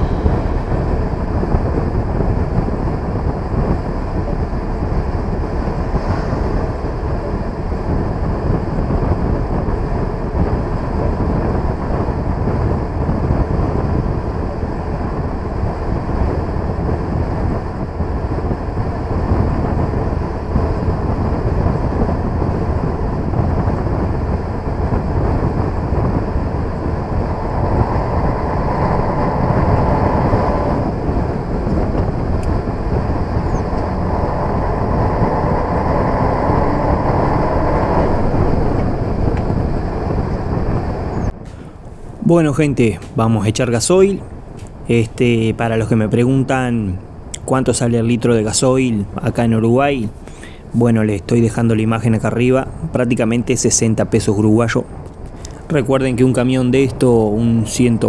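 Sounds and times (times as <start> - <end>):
higher engine note: 0.0 - 43.2
diesel truck engine running: 0.0 - 58.0.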